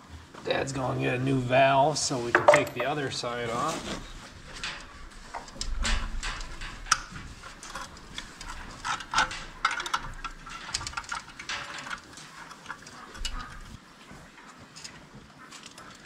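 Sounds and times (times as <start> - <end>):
hand tools clicking on metal: 4.4 - 13.8.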